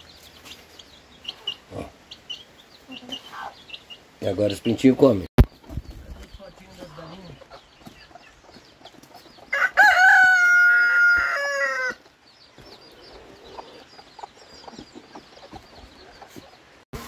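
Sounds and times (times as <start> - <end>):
chicks peeping: 0.0 - 17.0
rooster crowing: 9.5 - 12.0.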